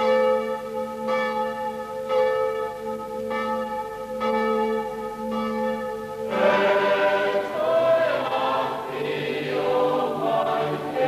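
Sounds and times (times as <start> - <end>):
church bell tolling: 0.0 - 9.4
choir singing: 6.3 - 11.0.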